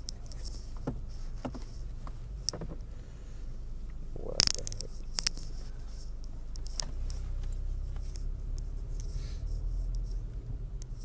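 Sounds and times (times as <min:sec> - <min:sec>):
small clicks and rustles: 0:00.0 - 0:03.0, 0:03.8 - 0:11.0
car cabin rumble: 0:00.0 - 0:11.0.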